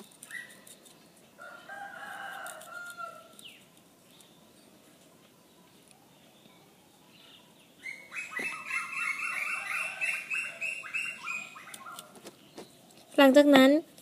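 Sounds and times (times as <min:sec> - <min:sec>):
knife clicking into nut husk: 0:02.1 - 0:04.3
bird chirping: 0:02.8 - 0:13.7.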